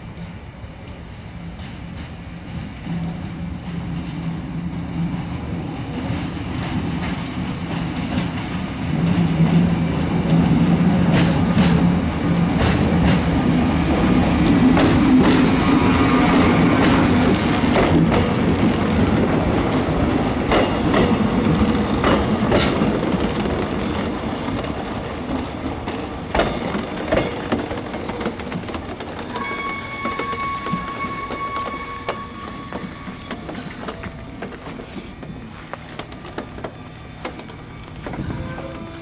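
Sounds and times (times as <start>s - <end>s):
wheels clicking over rail joints: 16.3s - 29.4s
high-pitched wheel squeal: 29.3s - 33.8s.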